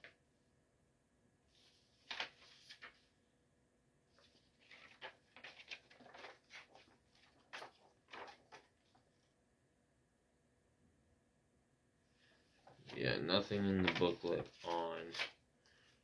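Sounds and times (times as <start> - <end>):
paper pages turning: 1.5 - 3.1, 4.1 - 9.2, 12.6 - 16.0.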